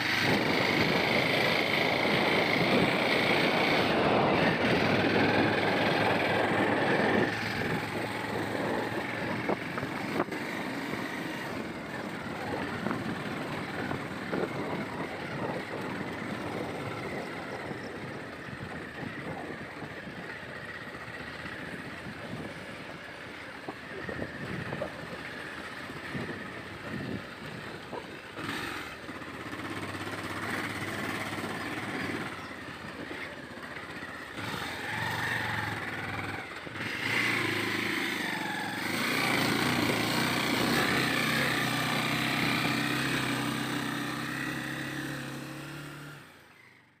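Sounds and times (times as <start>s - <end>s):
motorcycle engine running: 0.0s - 47.0s.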